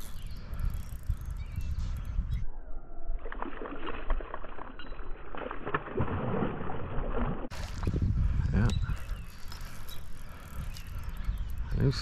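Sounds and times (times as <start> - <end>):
fish splashing in water: 3.2 - 7.9.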